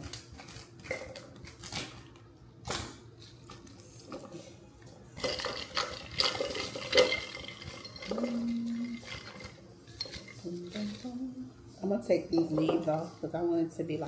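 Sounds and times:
ice cubes clinking on glass: 5.2 - 10.8.

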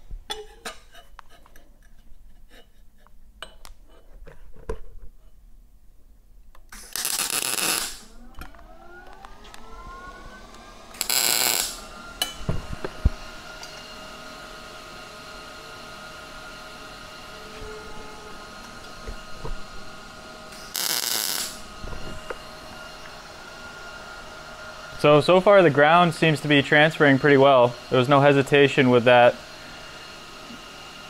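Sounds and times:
welding arc crackle: 6.7 - 8.1, 10.9 - 11.8, 20.5 - 21.7
welder cooling fan humming: 6.7 - 31.0.

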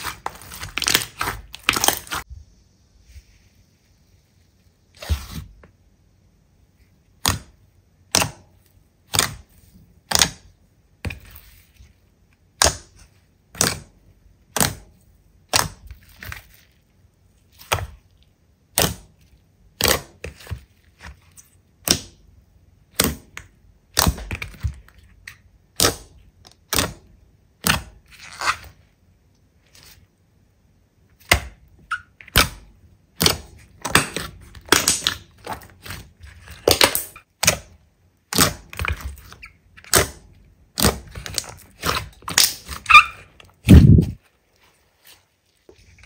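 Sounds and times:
slime crackle: 0.0 - 2.3.

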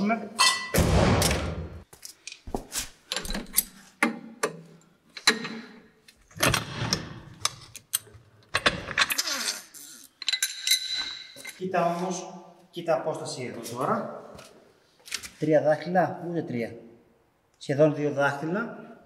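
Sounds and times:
metallic clanks of tools: 0.4 - 0.8, 10.2 - 11.6.

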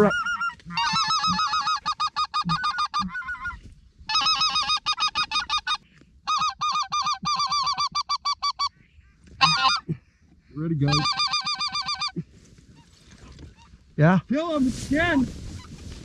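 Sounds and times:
goose call yodeling notes: 0.0 - 8.7, 9.4 - 9.9, 10.9 - 12.2.

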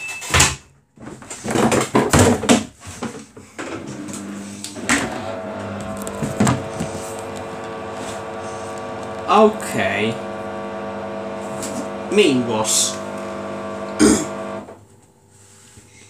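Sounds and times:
washing machine knocks and clatter: 0.4 - 2.8, 6.2 - 6.7
washing machine humming: 3.5 - 15.2.

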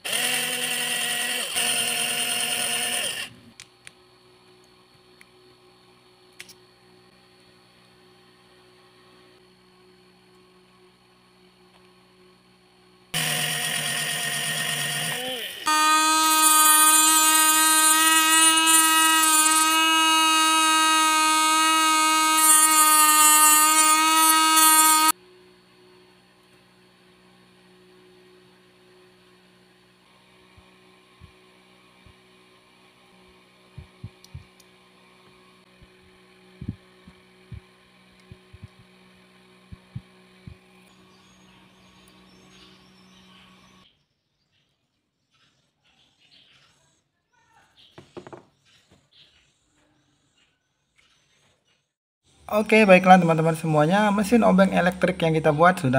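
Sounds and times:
electric mini drill whining: 0.0 - 3.6, 13.1 - 25.2.

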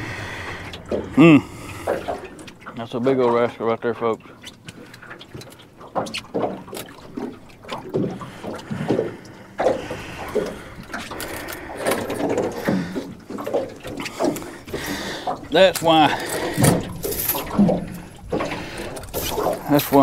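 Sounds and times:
man breathing hard: 0.0 - 2.3, 14.2 - 15.4, 16.1 - 16.8
water splashing: 0.0 - 20.0
handling knocks in a boat: 0.5 - 20.0.

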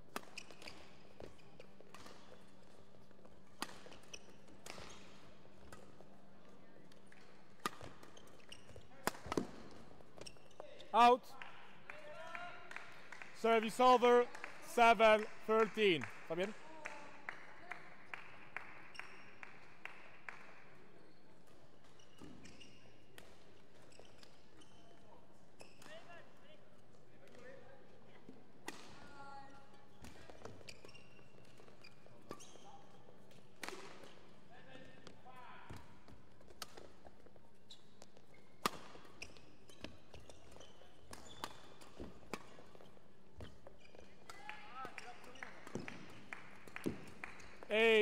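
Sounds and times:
shoes squeaking on court floor: 0.1 - 11.1, 21.0 - 26.0, 29.8 - 46.2
shoe squeaks and knocks: 0.3 - 2.4, 4.1 - 5.2, 7.8 - 9.4, 10.2 - 10.9, 30.3 - 33.0, 37.6 - 44.2
hall background: 13.4 - 16.5.

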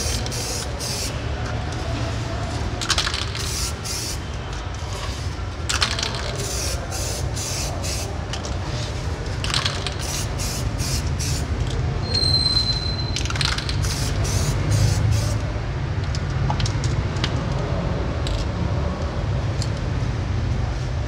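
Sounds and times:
aerosol spray can hissing: 6.5 - 8.1, 10.0 - 11.5, 13.8 - 15.4.

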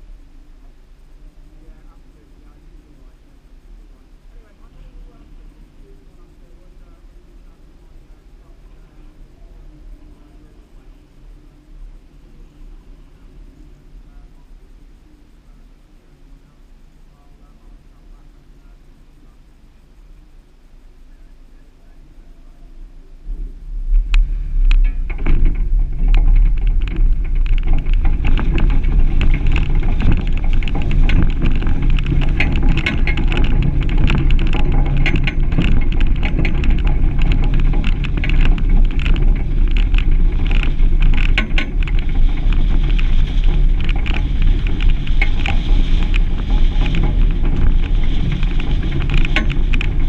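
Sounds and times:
engine and tyres rumbling: 0.0 - 50.0
stones crackling under tyres: 23.3 - 50.0.

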